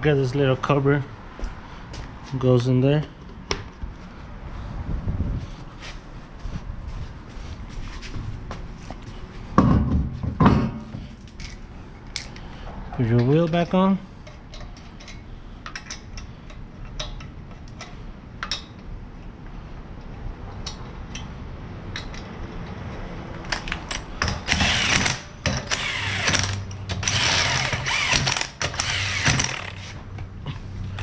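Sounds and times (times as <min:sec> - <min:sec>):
impact wrench running lug nuts: 0:23.5 - 0:30.2.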